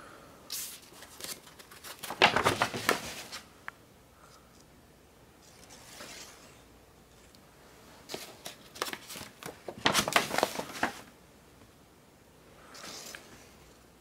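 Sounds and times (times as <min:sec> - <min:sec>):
paper record sleeves rustling: 0:00.5 - 0:03.5, 0:05.4 - 0:07.3, 0:08.0 - 0:11.2.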